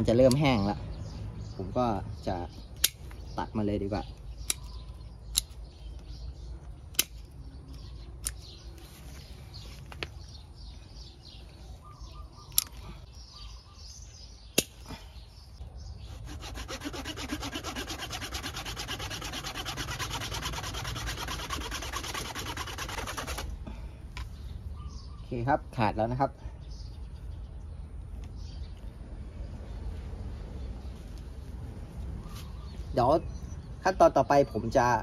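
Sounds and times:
pruning shears clicking: 2.8s - 3.2s, 4.4s - 5.6s
hand saw rasping through branch: 16.0s - 23.5s.

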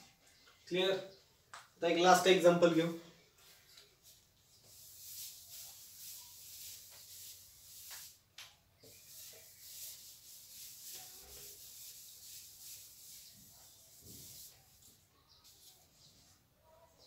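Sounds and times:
duster rubbing whiteboard: 4.6s - 8.2s, 8.8s - 15.7s.

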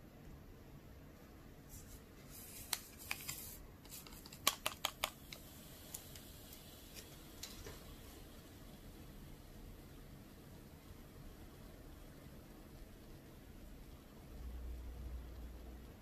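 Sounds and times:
sharp tapping clicks: 4.4s - 6.6s.

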